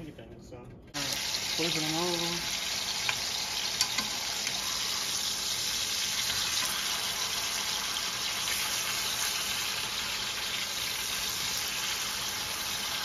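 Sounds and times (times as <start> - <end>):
meat sizzling in a skillet: 1.0 - 13.0.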